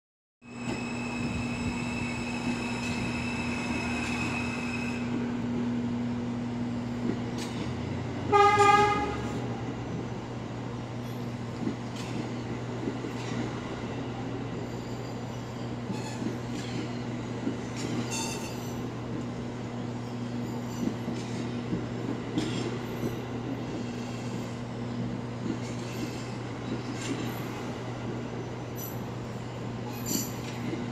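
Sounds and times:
subway train running past: 0.4 - 30.9
train horn blast: 8.3 - 9.5.

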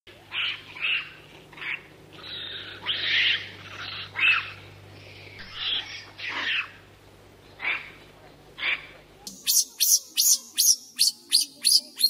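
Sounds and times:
steady low hum: 0.1 - 12.0
monkey squealing: 0.4 - 4.6.

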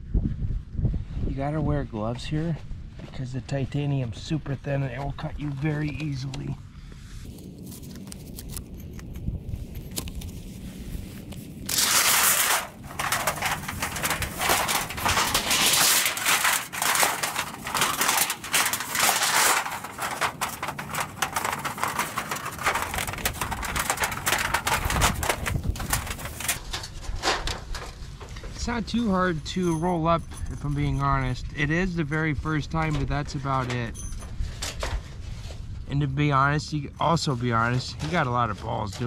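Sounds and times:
metal sheet crinkling and crackling: 7.2 - 36.0, 37.1 - 39.0.

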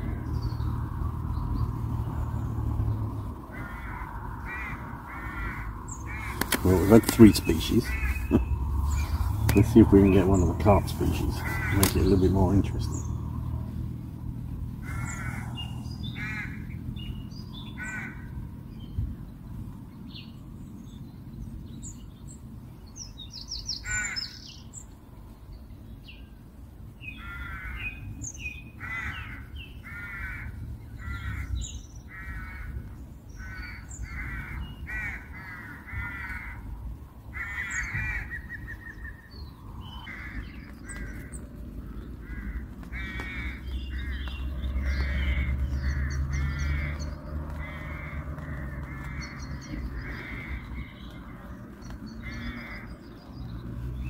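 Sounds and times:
low background noise: 0.0 - 54.0
small birds chirping faintly: 0.0 - 54.0
crows cawing: 3.5 - 13.1, 14.8 - 16.8, 17.6 - 18.5, 23.8 - 24.6, 27.1 - 28.0, 28.8 - 53.1.

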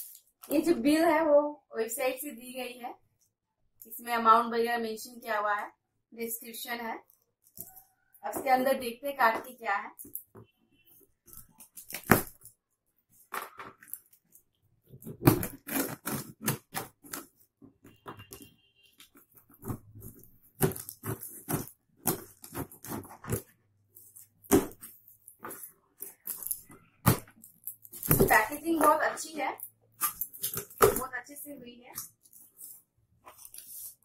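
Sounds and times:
packing tape ripping off cardboard: 15.0 - 28.6, 30.0 - 31.1.

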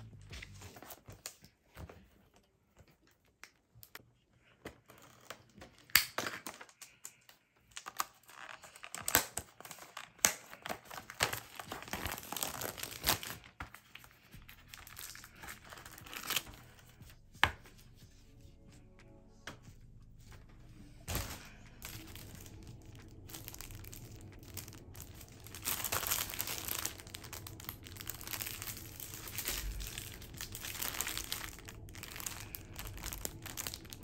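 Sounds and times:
plastic film crinkling: 6.4 - 17.2, 21.0 - 34.0.

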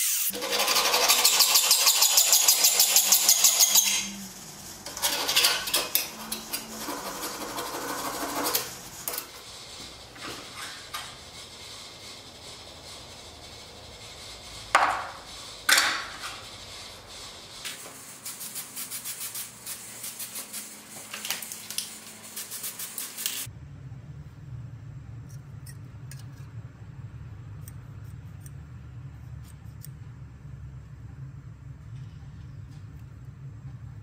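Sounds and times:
spray can hissing: 16.3 - 23.5
steady low hum: 23.4 - 34.0.

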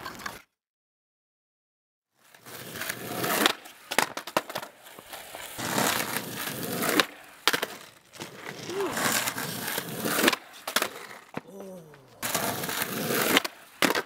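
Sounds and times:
skateboard wheels rolling on tarmac: 2.2 - 11.5, 12.1 - 14.0
skateboard clacking on ground: 2.7 - 14.0.

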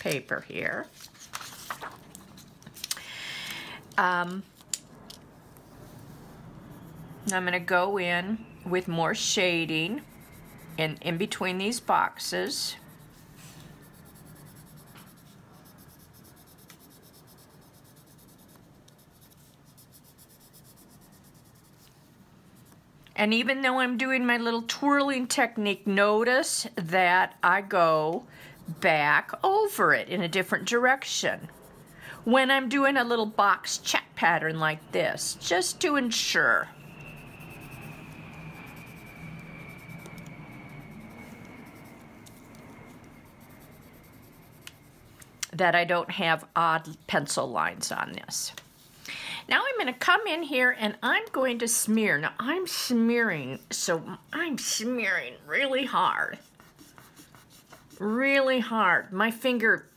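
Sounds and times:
low steady hum: 0.0 - 58.4
colored pencil scratching on plastic: 5.6 - 22.8, 26.2 - 45.3, 53.9 - 59.9
thin high tone: 6.7 - 12.0, 34.0 - 45.2.

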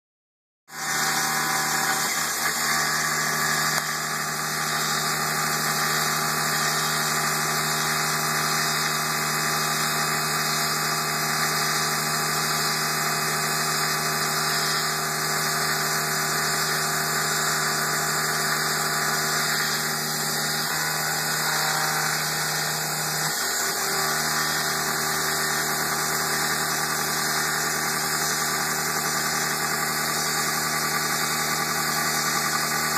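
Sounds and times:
milling machine hum and whine: 0.7 - 32.9.

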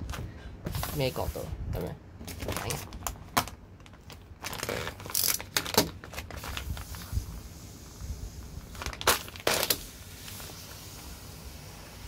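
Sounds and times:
plastic bag crinkling: 2.2 - 7.2, 8.6 - 10.5.

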